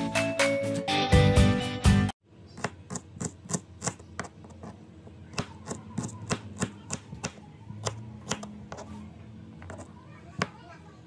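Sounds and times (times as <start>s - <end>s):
knife chopping on wooden board: 2.6s - 8.9s.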